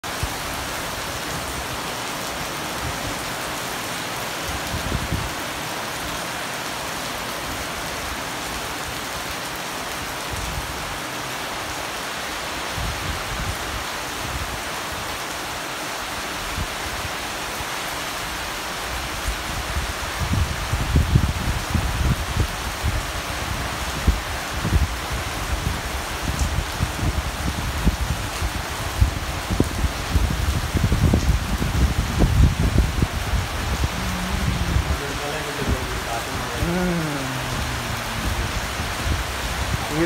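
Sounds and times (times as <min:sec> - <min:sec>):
heavy rain on tiles: 0:00.0 - 0:40.0
low rumbles: 0:31.5 - 0:39.9.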